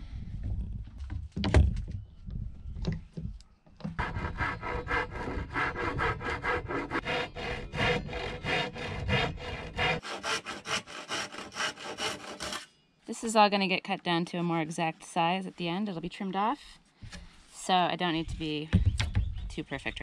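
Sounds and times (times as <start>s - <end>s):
handsaw cutting wood: 4.0s - 12.7s.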